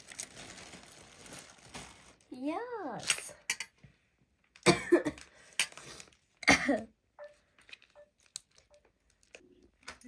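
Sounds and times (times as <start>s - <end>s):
person coughing: 4.6s - 5.3s, 6.4s - 7.0s.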